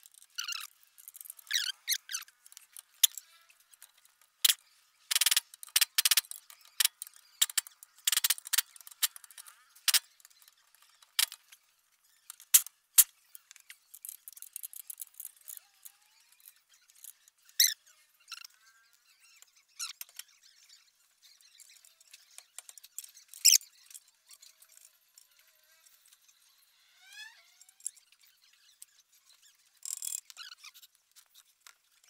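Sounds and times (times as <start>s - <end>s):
metal parts clicking and clinking: 0.0s - 11.6s, 12.2s - 17.7s, 29.8s - 31.8s.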